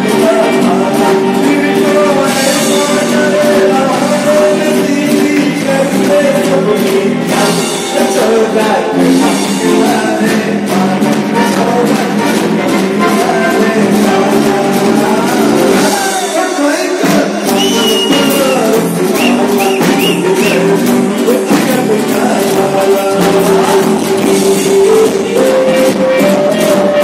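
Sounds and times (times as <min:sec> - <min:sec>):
drums: 0:00.0 - 0:27.0
electric guitar: 0:00.0 - 0:27.0
person singing into microphone: 0:00.0 - 0:27.0.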